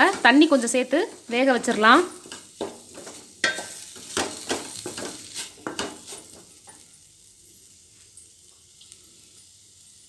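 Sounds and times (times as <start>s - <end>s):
wooden spatula scraping a pot: 0.0s - 6.6s
soft sizzle: 0.0s - 10.0s.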